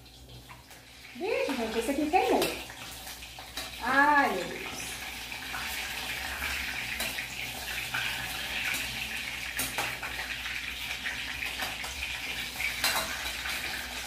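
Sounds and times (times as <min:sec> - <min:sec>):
food sizzling in hot oil: 0:00.0 - 0:14.0
metal spoon clinking on pot: 0:12.7 - 0:13.6.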